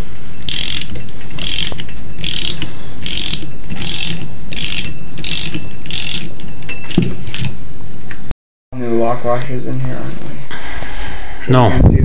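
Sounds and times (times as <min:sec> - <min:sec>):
socket ratchet clicking: 0:00.4 - 0:07.5.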